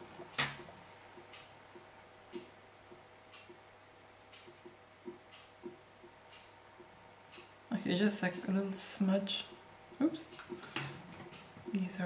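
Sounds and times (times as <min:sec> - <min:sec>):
low steady hum: 0:00.0 - 0:12.0
faint small ticks and clicks: 0:00.2 - 0:07.5.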